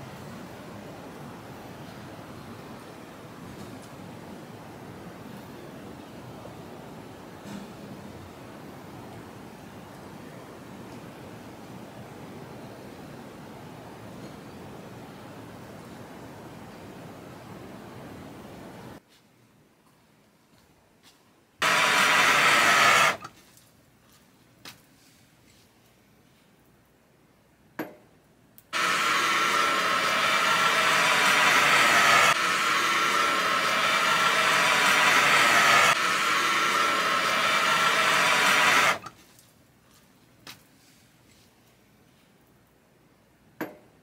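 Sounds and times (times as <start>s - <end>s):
gas torch hissing: 21.6s - 23.3s, 28.8s - 39.1s.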